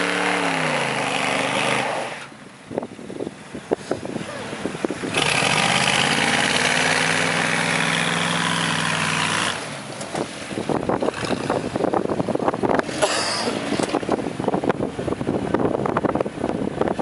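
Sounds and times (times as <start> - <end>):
wind buffeting microphone: 2.6 - 5.6, 10.2 - 17.0.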